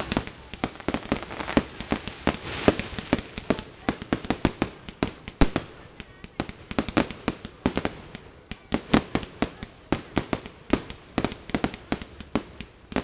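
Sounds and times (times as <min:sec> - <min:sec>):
fireworks bangs and cracks: 0:00.0 - 0:13.0.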